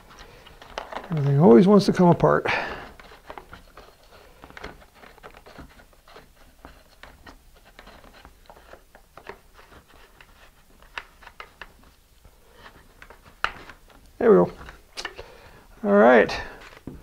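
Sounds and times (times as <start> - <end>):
small clicks and taps of plastic parts: 2.8 - 15.4.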